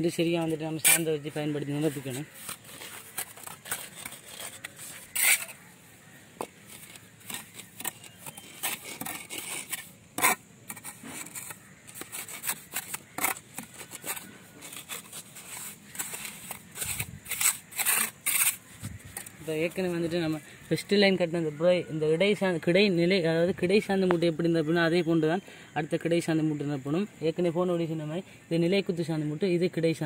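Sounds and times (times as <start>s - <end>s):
trowel scraping mortar: 0.1s - 20.2s.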